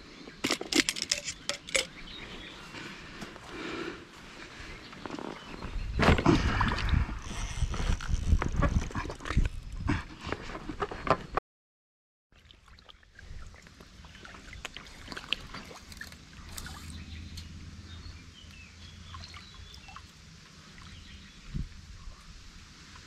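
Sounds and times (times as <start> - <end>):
water splashing: 12.4 - 17.1
river water lapping: 12.4 - 21.5.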